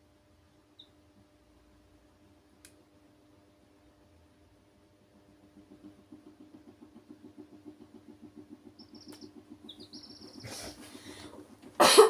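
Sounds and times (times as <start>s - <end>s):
chicks peeping: 0.7s - 1.0s, 5.6s - 11.8s.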